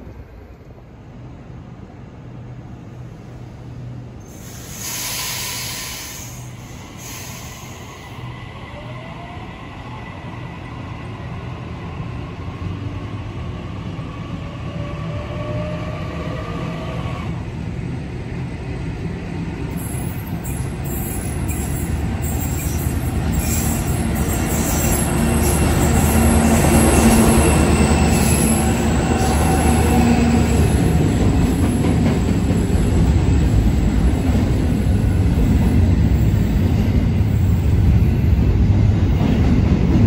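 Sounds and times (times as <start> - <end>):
hiss: 4.2 - 8.1.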